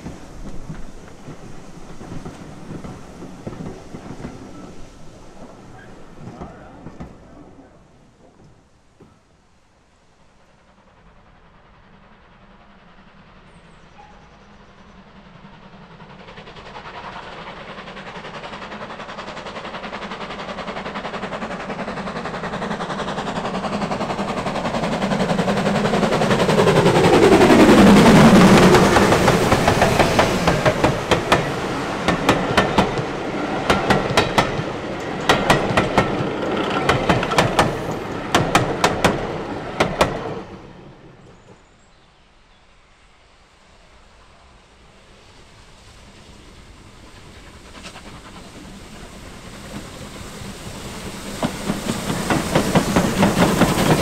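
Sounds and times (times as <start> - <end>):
steam train passing: 0.0 - 54.0
wheels clattering over rail joints: 24.4 - 40.5.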